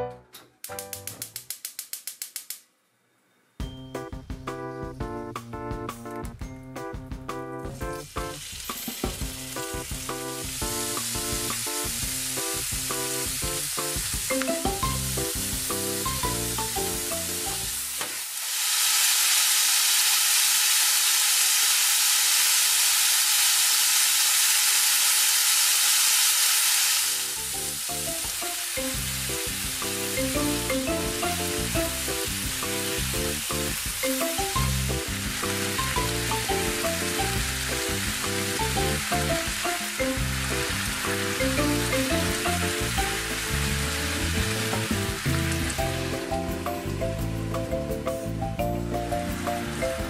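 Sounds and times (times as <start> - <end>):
background music: 0.0 - 1.5, 3.6 - 18.0, 27.4 - 50.0
meat sizzling in a frying pan: 7.7 - 50.0.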